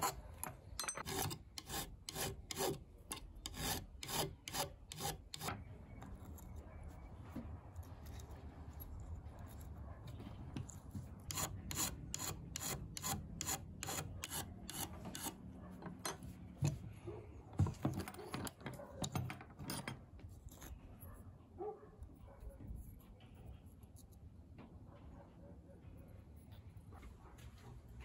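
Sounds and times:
metal file rasping on aluminum: 0.0 - 6.5, 11.2 - 15.4.

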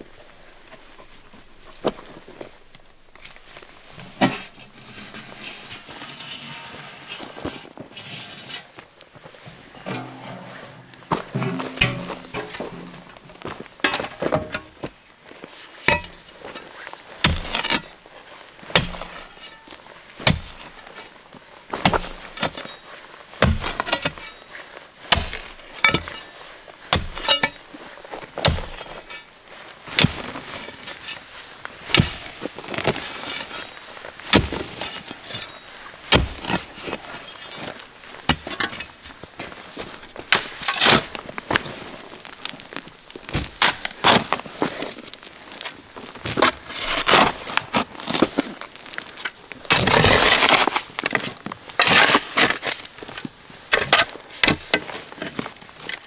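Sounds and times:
hard materials knocking and clinking: 9.8 - 14.7.

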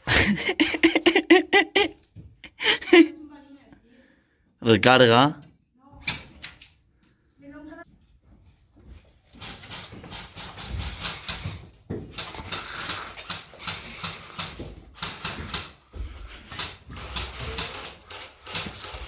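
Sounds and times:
heavy breathing: 3.8 - 4.6, 10.8 - 18.2.

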